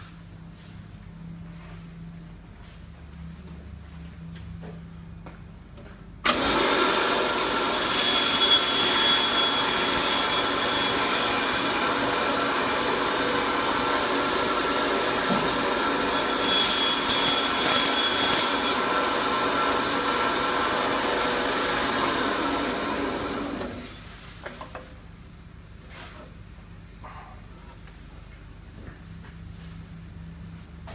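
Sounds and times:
meat bandsaw cutting bone: 0:06.3 - 0:23.9.

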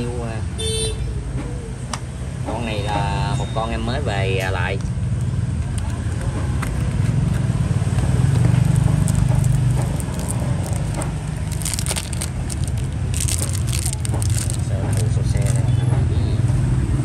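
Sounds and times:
crackly rustles: 0:05.6 - 0:15.7.

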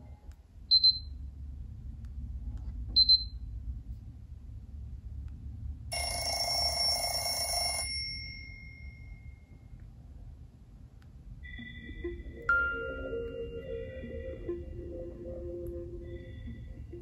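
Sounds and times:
phone alert chime: 0:06.0 - 0:09.1.

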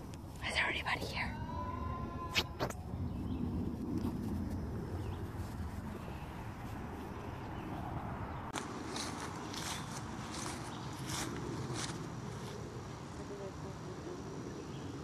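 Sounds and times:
low rumble: 0:01.5 - 0:15.0
footsteps through grass: 0:08.5 - 0:12.7.

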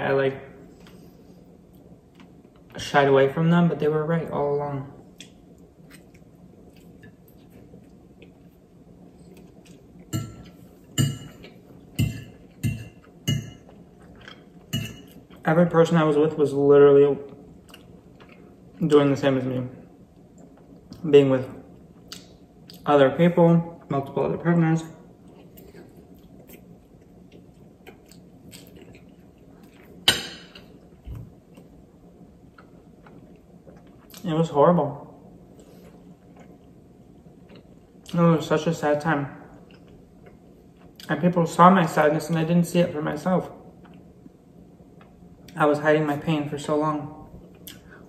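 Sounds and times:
chewing: 0:25.2 - 0:30.8, 0:35.6 - 0:36.8.

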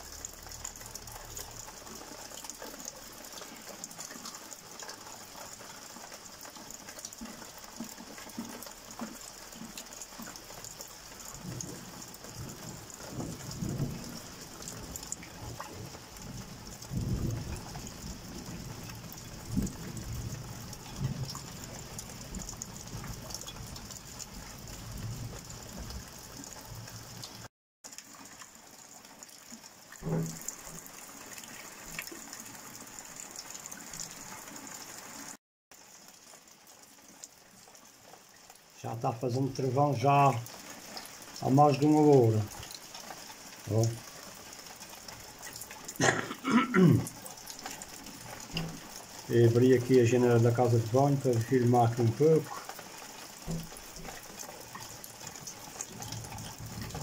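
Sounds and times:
heavy rain falling: 0:00.0 - 0:57.0
thunder rumbling: 0:11.4 - 0:26.2.

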